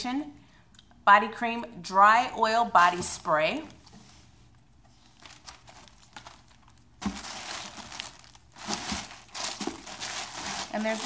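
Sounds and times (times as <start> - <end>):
plastic bag crinkling: 5.1 - 11.0.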